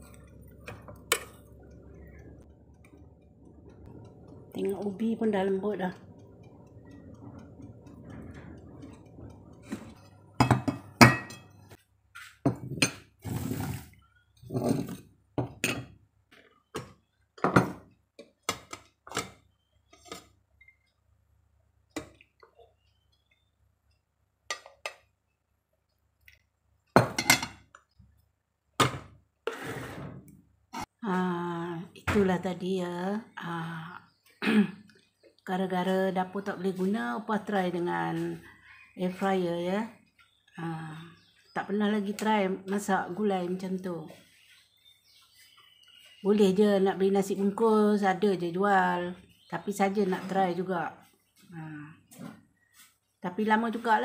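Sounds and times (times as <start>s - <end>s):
utensils and crockery clinking: 0.0s - 2.4s, 9.6s - 11.7s.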